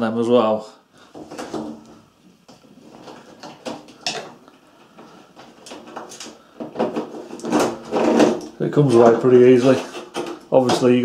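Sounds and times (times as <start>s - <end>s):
plastic clicks knocks and scrapes: 5.0s - 11.0s.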